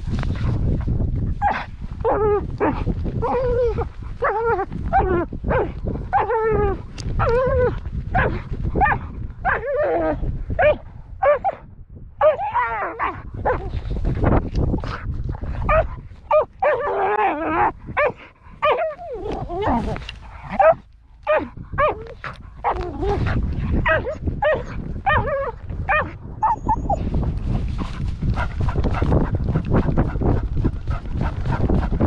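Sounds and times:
low microphone rumble: 0.0 - 32.0
dog barking and yelping: 3.2 - 11.6, 12.2 - 13.8, 15.6 - 27.1.

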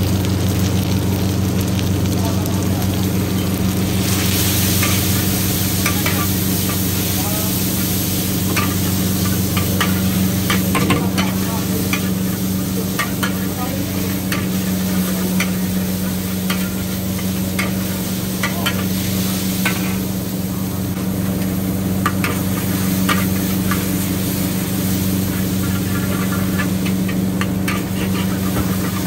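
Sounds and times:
constant low hum: 0.0 - 29.0
noodles sizzling: 0.0 - 29.0
metal ladle scraping a wok: 25.3 - 29.0.

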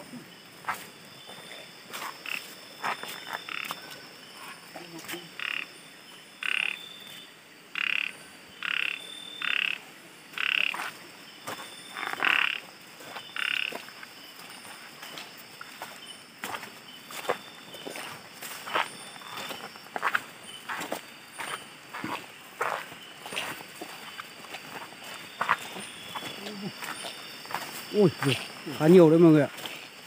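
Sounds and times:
frogs croaking: 0.0 - 30.0.

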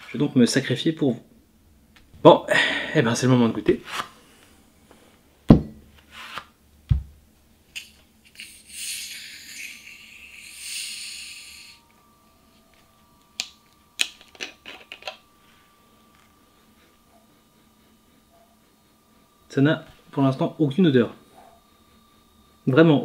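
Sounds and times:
carbonated soda hissing: 7.8 - 11.9.

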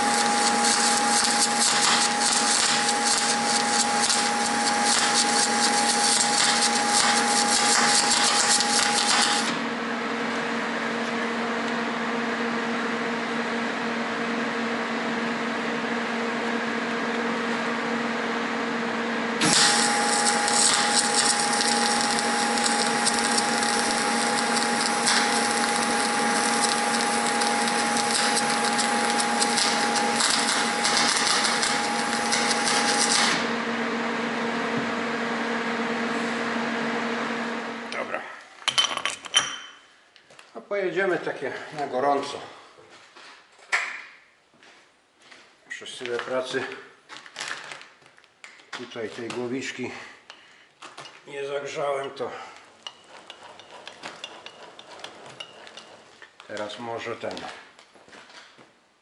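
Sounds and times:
welder arc crackling and hissing: 0.0 - 9.6, 19.4 - 33.6.

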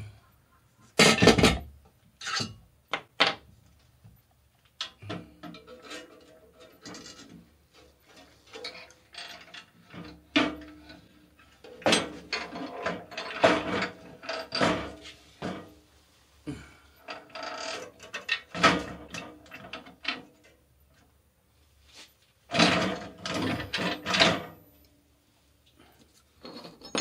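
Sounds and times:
metal clunks and scrapes: 5.0 - 15.8, 21.9 - 24.6, 26.4 - 27.0.

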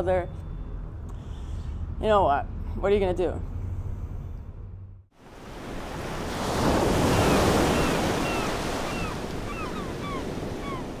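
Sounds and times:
ocean waves breaking: 5.1 - 11.0
birds calling: 7.0 - 11.0.

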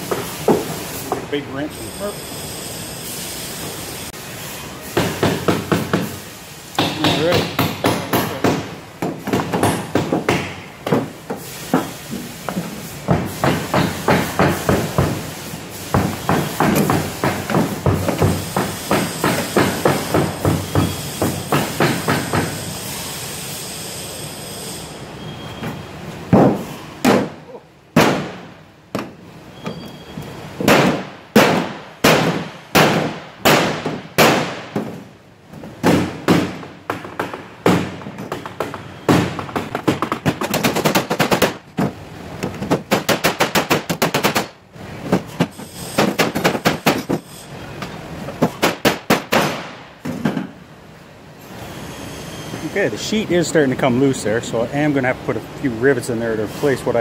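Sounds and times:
hammer striking aluminum: 6.7 - 11.1.

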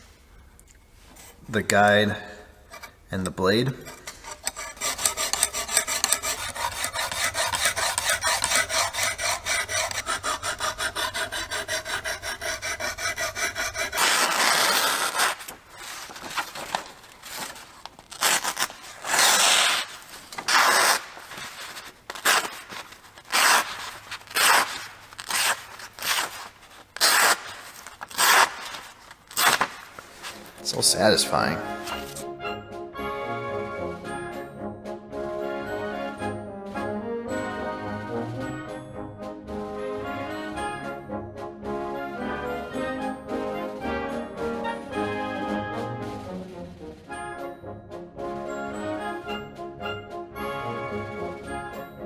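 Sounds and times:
hone rasping along knife edge: 3.8 - 15.6
knife slicing paper: 4.2 - 30.6.

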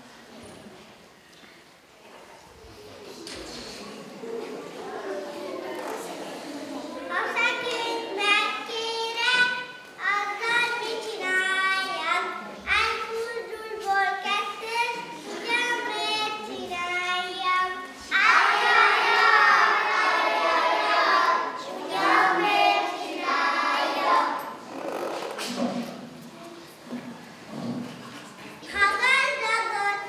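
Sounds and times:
children singing together: 18.0 - 24.6.

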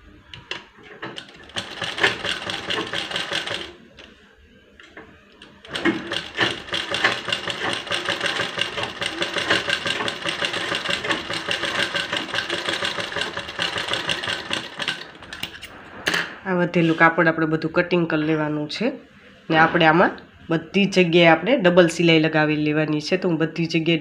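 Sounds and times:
sewing machine stitching: 0.9 - 3.8, 5.4 - 15.6.

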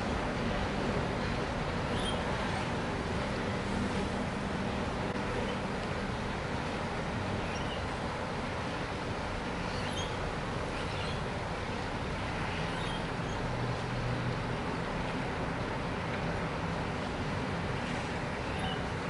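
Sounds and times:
distant engines and traffic: 0.0 - 19.0
lorikeets chirping: 1.9 - 2.3, 7.4 - 7.9, 9.6 - 11.3, 12.5 - 13.4.

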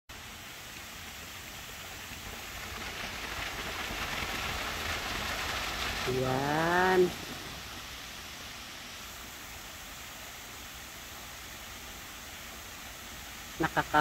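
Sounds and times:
fountain water splashing: 0.1 - 14.0
woman speaking: 6.1 - 7.3, 13.6 - 14.0.

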